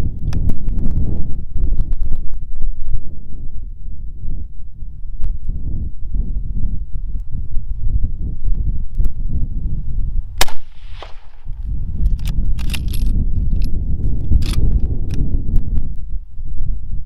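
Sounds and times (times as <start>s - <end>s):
wind noise on microphone: 0.0s - 17.0s
rifle shot: 10.4s - 11.5s
rifle bolt clicking and scraping: 12.0s - 15.2s.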